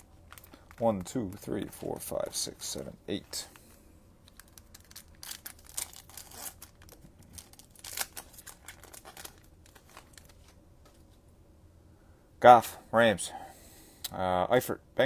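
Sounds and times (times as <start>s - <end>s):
foil wrappers tearing and crinkling: 4.3s - 10.4s.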